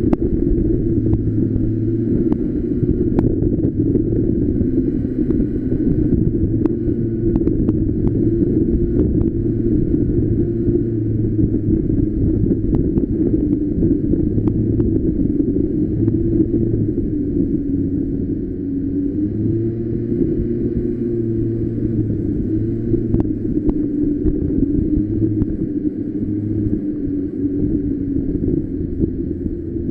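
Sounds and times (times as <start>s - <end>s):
go-kart engine running: 0.0s - 29.9s
road and wind rumble: 0.0s - 29.9s.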